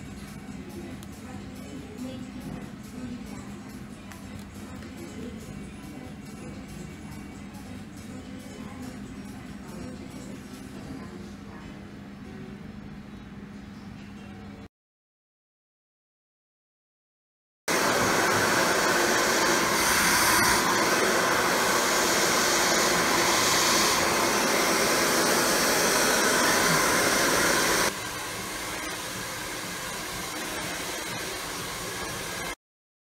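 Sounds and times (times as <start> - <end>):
hair dryer blowing: 17.7 - 32.6.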